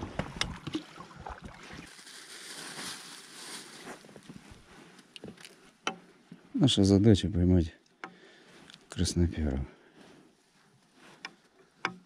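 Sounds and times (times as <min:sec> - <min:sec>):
soft hiss: 0:01.9 - 0:04.1.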